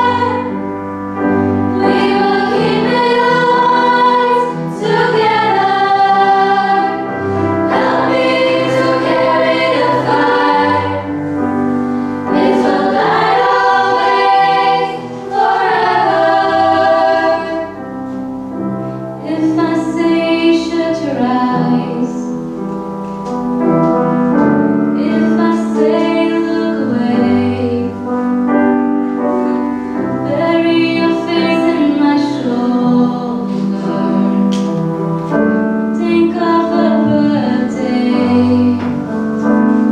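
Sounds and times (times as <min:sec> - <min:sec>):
girls' choir singing: 0:00.0 - 0:00.9, 0:01.6 - 0:18.0, 0:25.0 - 0:28.0
grand piano: 0:00.0 - 0:39.9.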